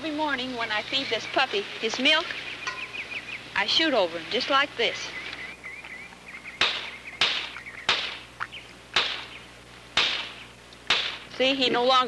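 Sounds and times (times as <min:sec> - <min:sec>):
gunshots: 0:06.6 - 0:08.3, 0:09.0 - 0:09.4, 0:10.0 - 0:11.3.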